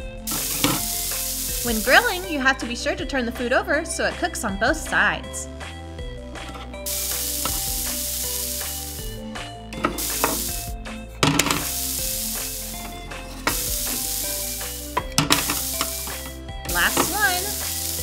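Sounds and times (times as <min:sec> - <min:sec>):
soft background music: 0:00.0 - 0:18.0
grill sizzling: 0:00.2 - 0:02.4, 0:06.4 - 0:18.0.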